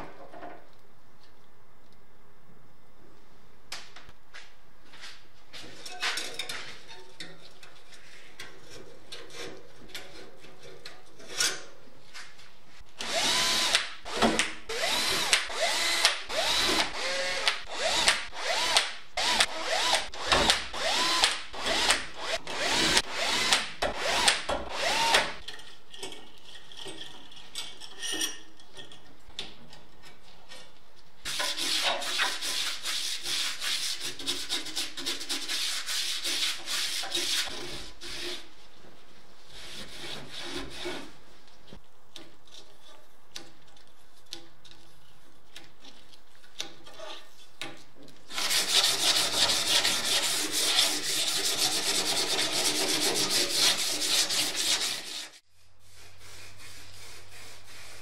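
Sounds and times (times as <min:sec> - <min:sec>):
cordless drill whine: 0:13.0 - 0:25.3.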